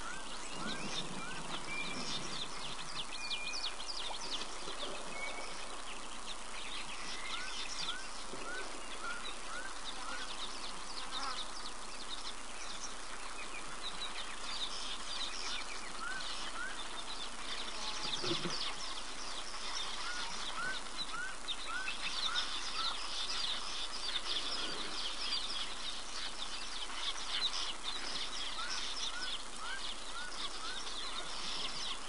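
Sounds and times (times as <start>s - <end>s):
birds chirping: 0.0s - 32.0s
insect hiss: 0.0s - 32.0s.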